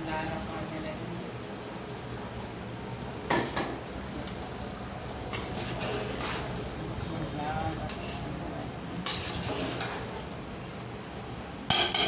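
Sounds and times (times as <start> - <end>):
bubbling hiss: 0.0 - 11.0
metal spoon stirring in pot: 5.3 - 6.7, 7.8 - 8.4, 9.0 - 10.8.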